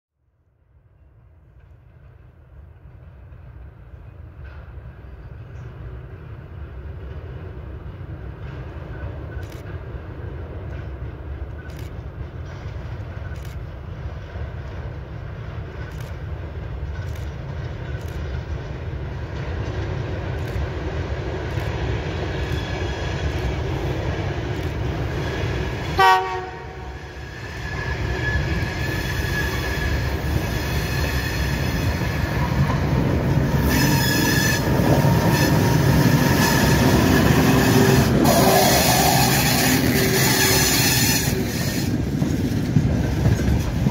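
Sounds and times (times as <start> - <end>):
diesel locomotive engine rumble: 0.4 - 43.9
wheels clicking over rail joints: 7.0 - 43.9
train horn blast: 25.9 - 27.2, 33.4 - 42.0.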